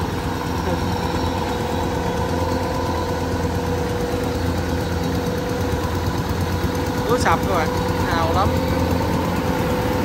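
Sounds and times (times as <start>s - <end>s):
diesel engine running under load: 0.0s - 10.0s
steady whine: 0.0s - 10.0s.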